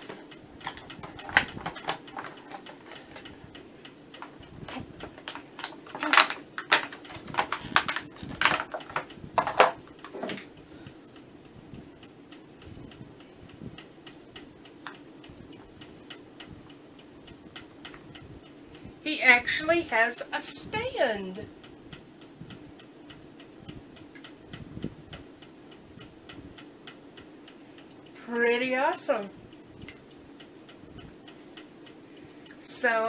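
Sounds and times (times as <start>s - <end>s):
plastic packaging being handled: 5.3s - 10.4s.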